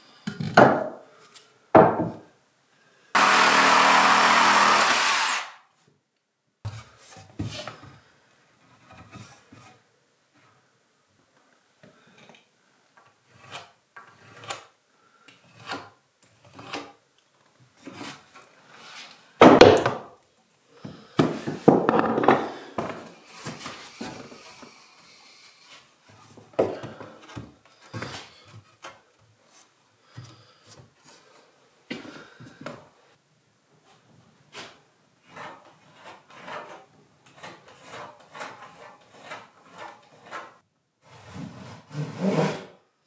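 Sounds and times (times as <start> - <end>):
wooden knocks and scrapes: 20.8 - 24.8.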